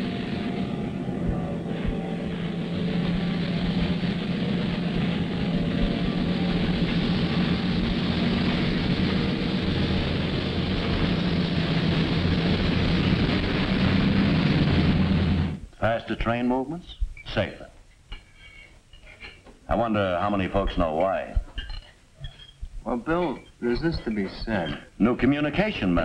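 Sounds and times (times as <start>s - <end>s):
train engine drone and rumble: 0.0s - 15.7s.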